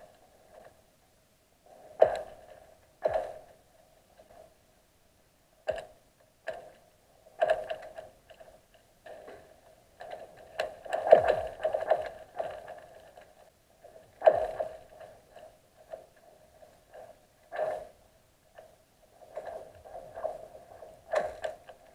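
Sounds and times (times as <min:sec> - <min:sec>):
ice cracking underwater: 0:10.0 - 0:13.3, 0:14.2 - 0:15.0.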